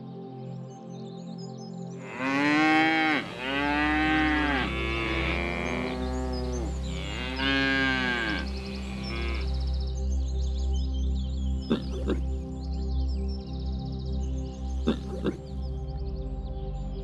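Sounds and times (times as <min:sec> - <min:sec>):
cattle mooing: 0:02.0 - 0:09.8, 0:14.9 - 0:15.4.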